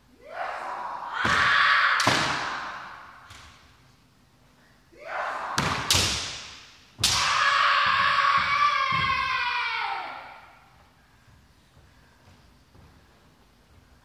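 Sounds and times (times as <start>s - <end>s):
loud shouts: 0.1s - 3.2s, 4.9s - 5.9s, 7.0s - 10.7s
bamboo sword strikes: 2.0s - 2.6s, 5.6s - 7.4s.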